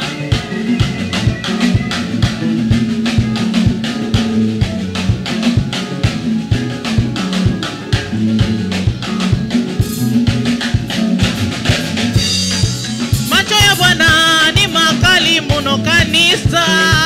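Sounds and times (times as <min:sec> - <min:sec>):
bass line: 0:00.0 - 0:17.0
drum kit beat: 0:00.0 - 0:17.0
singing voices: 0:13.2 - 0:17.0.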